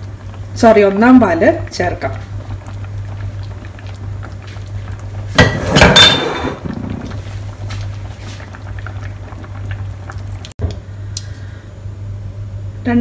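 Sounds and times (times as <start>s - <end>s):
curry bubbling with crackles: 0.0s - 10.6s
steady low hum: 0.0s - 13.0s
milk pouring and splashing: 2.2s - 5.9s.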